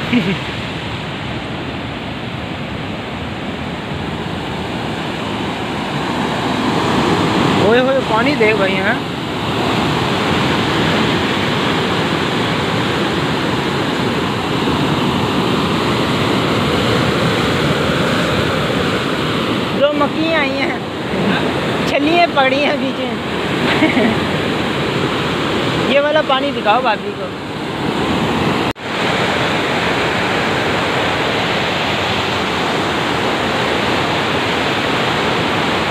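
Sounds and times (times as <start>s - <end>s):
churning white water: 0.0s - 35.9s.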